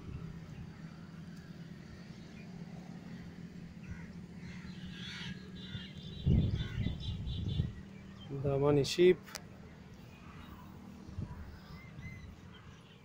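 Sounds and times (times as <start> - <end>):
birds calling: 0.0 - 13.0
steady low hum: 0.0 - 13.0
crow-like caws: 3.8 - 5.9.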